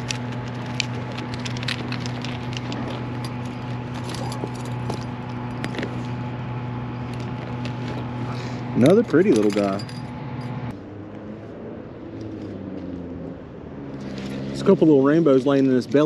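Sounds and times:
clicks and crackles in dry brush: 0:00.0 - 0:06.2, 0:07.0 - 0:09.8
steady low hum: 0:00.0 - 0:14.1.

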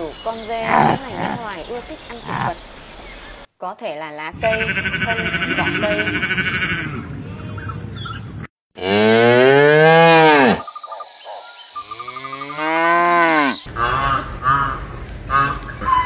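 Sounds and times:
cattle mooing: 0:00.6 - 0:01.5, 0:04.4 - 0:07.6, 0:08.8 - 0:10.6.

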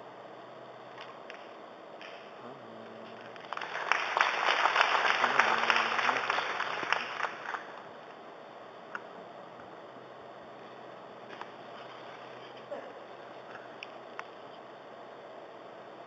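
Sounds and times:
audience applauding: 0:03.1 - 0:07.8.

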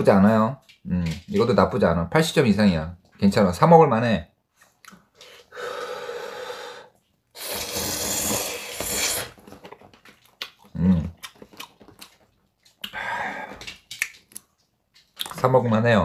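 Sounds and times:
slurping broth and noodles: 0:05.2 - 0:09.6.

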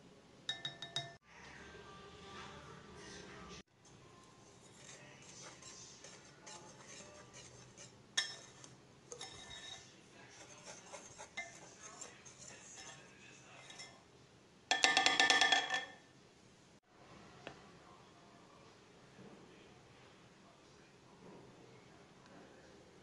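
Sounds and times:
whisk clinking against glass: 0:00.5 - 0:01.2, 0:04.8 - 0:14.0, 0:14.7 - 0:16.0
whisk stirring flour in glass bowl: 0:04.2 - 0:14.0.

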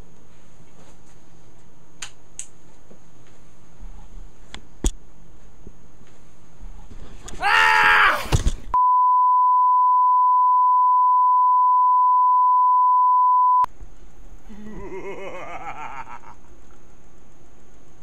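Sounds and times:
loud shrill cry: 0:07.4 - 0:08.3.

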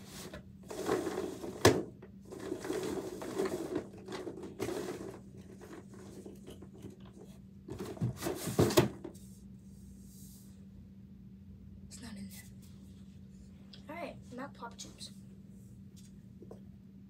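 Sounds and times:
faint steady hum: 0:00.0 - 0:17.0
plastic toys rattling: 0:02.2 - 0:07.1.

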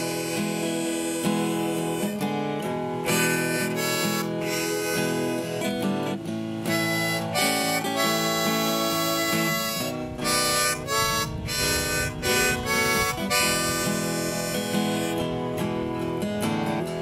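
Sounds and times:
acoustic guitar accompaniment: 0:00.0 - 0:17.0
harmonica blues line: 0:00.0 - 0:17.0.

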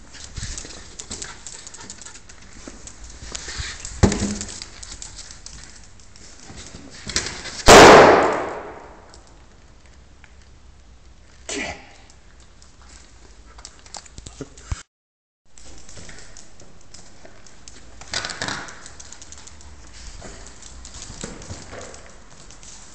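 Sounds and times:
balloon bursting with a bang: 0:07.7 - 0:09.0.

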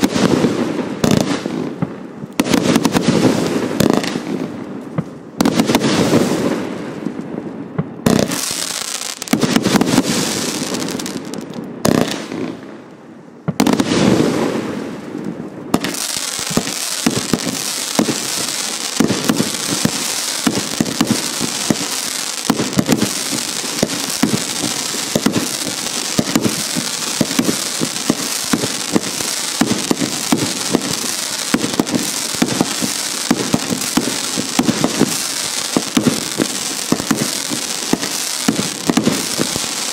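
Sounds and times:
heavy firework bursts: 0:00.0 - 0:04.6, 0:05.4 - 0:07.0, 0:08.0 - 0:12.7, 0:13.5 - 0:15.1, 0:15.7 - 0:39.9
rapid small firework shots: 0:00.0 - 0:06.7, 0:07.8 - 0:12.6, 0:15.7 - 0:39.9
firework hiss: 0:08.1 - 0:12.3, 0:15.8 - 0:39.9.

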